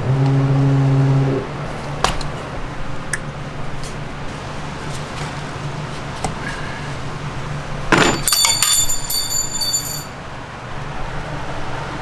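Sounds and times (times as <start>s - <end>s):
metal tool clattering: 7.9s - 10.1s
ringing metallic clinks: 8.0s - 10.2s.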